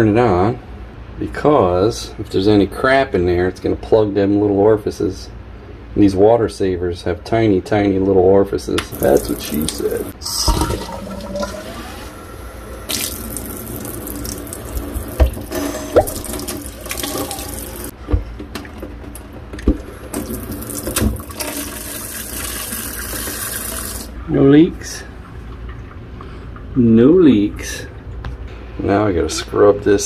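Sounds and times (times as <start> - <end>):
water running into metal sink: 8.9 - 12.1, 12.8 - 17.9, 20.1 - 24.2.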